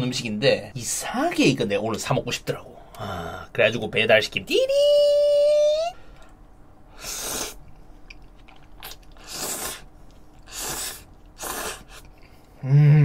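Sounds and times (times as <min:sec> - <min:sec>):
noodles being slurped: 0:08.3 - 0:12.3.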